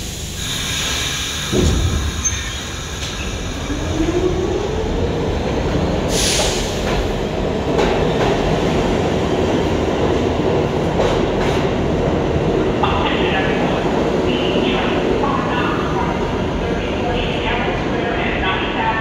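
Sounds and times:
burst of air hiss: 0:00.0 - 0:02.7, 0:06.1 - 0:06.9
rumble of train cars: 0:00.0 - 0:19.0.

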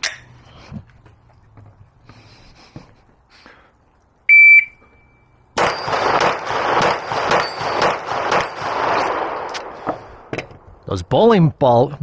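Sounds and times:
shot timer beep: 0:04.3 - 0:05.2
pistol shots: 0:05.6 - 0:09.9.

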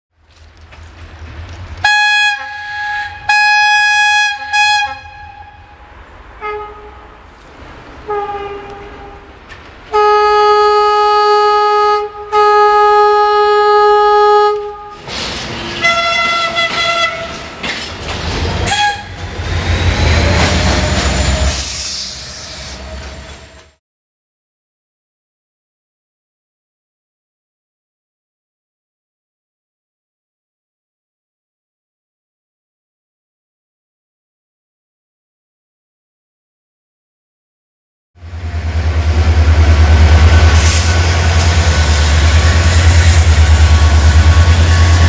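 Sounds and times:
passing train rumble and clatter: 0:00.2 - 0:23.8, 0:38.2 - 0:45.0
locomotive horn blasts: 0:01.8 - 0:07.2, 0:08.0 - 0:15.0, 0:15.7 - 0:17.6, 0:18.6 - 0:19.2.

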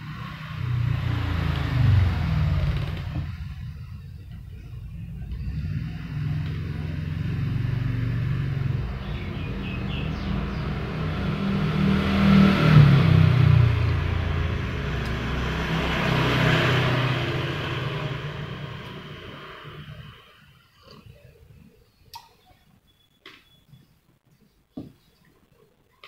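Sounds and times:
vehicle engine running: 0:00.0 - 0:20.6.

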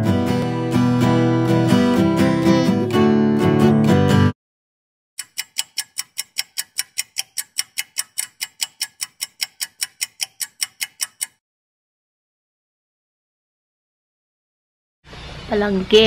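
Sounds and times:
typing clicks: 0:05.2 - 0:11.4.

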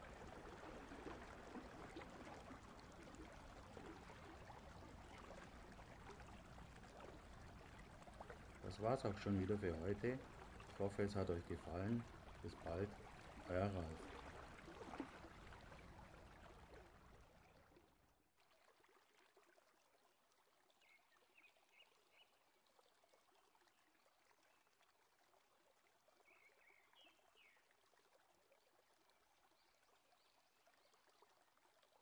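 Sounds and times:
faint stream water: 0:00.0 - 0:32.0
faint hiss: 0:08.6 - 0:14.0.

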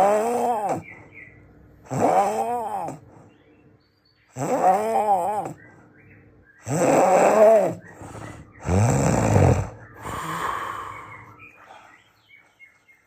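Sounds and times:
rasping snores: 0:00.0 - 0:01.0, 0:01.8 - 0:03.1, 0:04.3 - 0:05.6, 0:06.6 - 0:11.2.

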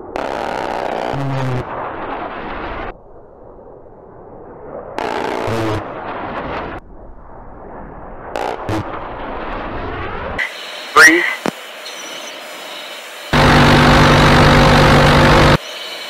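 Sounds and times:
fighter jet passing low: 0:01.6 - 0:10.9.

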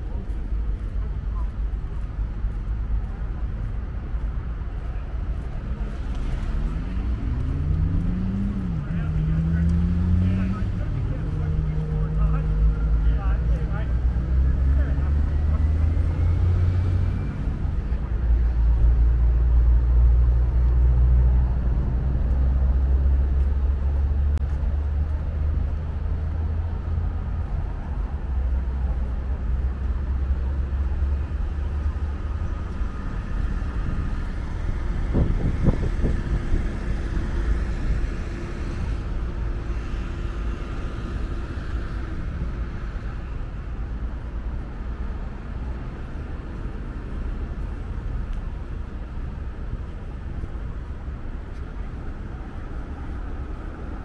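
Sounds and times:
road traffic: 0:00.0 - 0:54.0
vehicle passing: 0:01.9 - 0:54.0
wind rumbling on microphone: 0:13.8 - 0:54.0.

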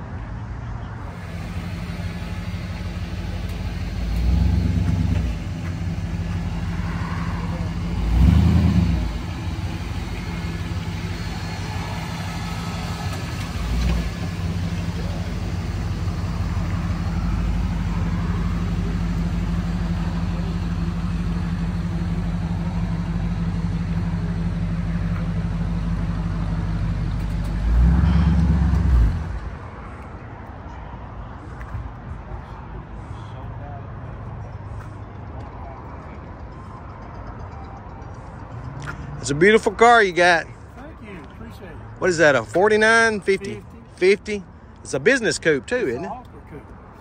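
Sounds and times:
car engine idling: 0:01.0 - 0:30.0
engine revving: 0:01.2 - 0:24.1, 0:26.6 - 0:29.5.

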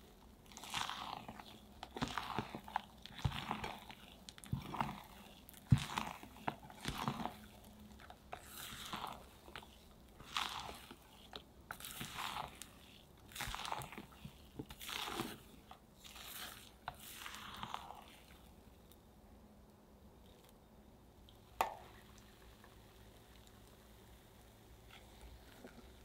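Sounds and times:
spatula folding batter in bowl: 0:00.0 - 0:18.6.

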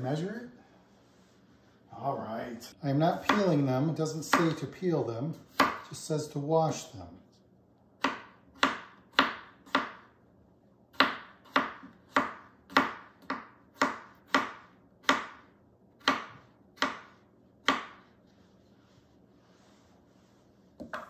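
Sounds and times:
knife tapping cutting board: 0:20.8 - 0:21.0.

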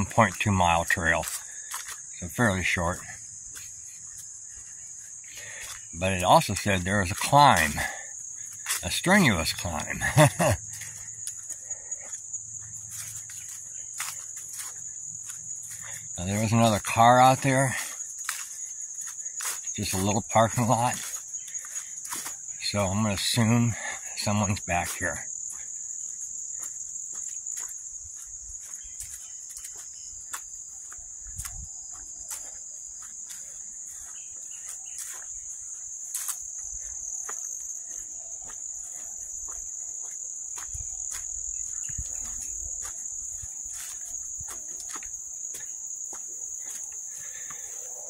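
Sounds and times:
footsteps on dirt trail: 0:00.0 - 0:48.0
insects droning: 0:00.0 - 0:48.0.

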